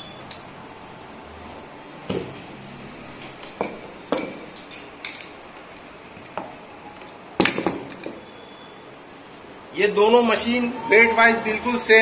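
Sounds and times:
metal tools clunking on concrete: 3.4s - 5.4s, 7.4s - 8.3s.

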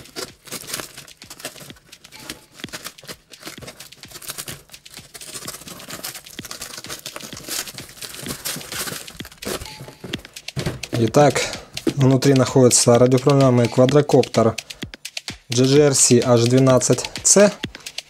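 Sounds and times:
scissors cutting plastic packaging: 0.0s - 12.4s
plastic packaging crinkling: 0.0s - 12.9s.

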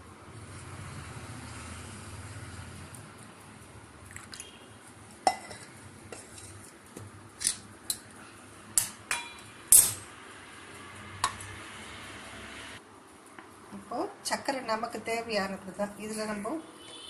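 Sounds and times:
metal vessels clinking: 5.2s - 6.5s, 8.8s - 10.1s.

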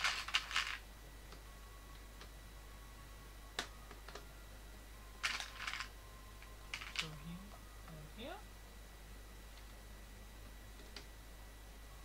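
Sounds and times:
plastic bricks clattering: 0.0s - 0.8s, 5.2s - 5.9s, 6.7s - 7.2s
plastic bricks clicking: 0.0s - 0.8s, 6.7s - 7.2s.

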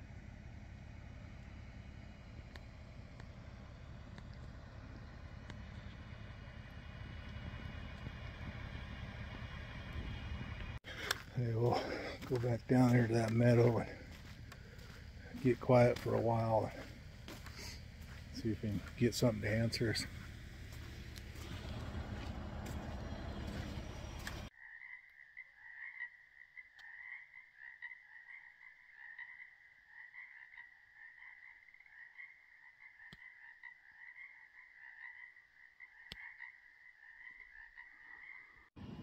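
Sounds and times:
frogs chorusing: 10.8s - 38.7s.

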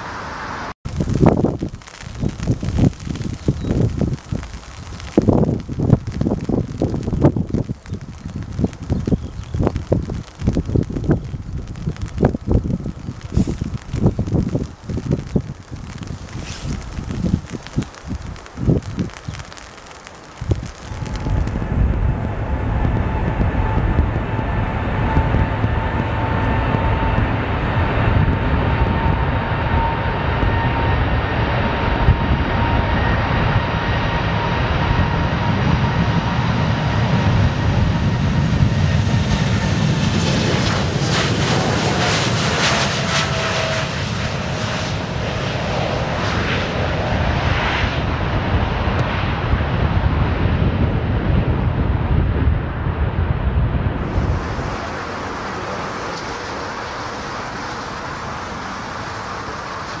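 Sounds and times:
jet engine rumble and whine: 0.0s - 60.0s.

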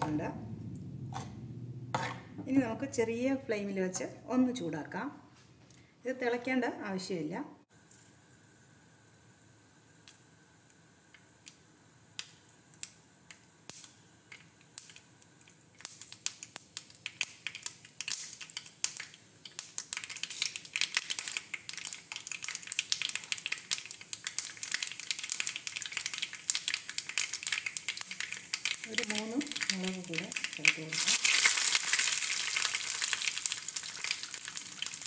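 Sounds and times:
mustard seeds popping in hot oil: 7.8s - 35.0s.

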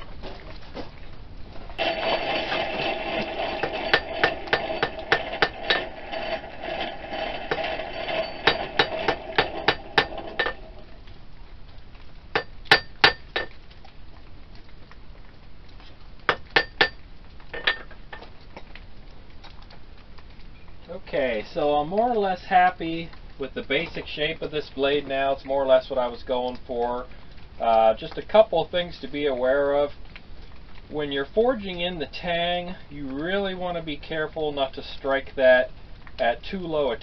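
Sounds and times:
hammer striking metal on anvil: 1.8s - 6.0s, 7.5s - 10.8s, 12.4s - 13.5s, 16.3s - 17.0s.

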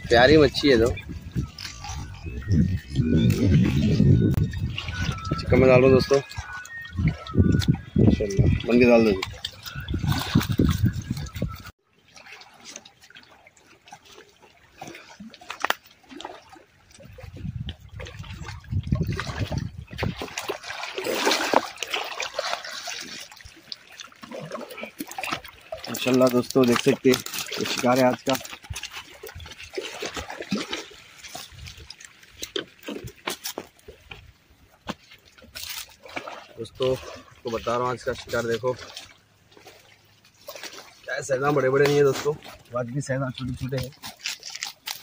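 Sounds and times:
river water splashing: 0.0s - 45.0s
net and fish tapping on stones: 43.8s - 45.0s.

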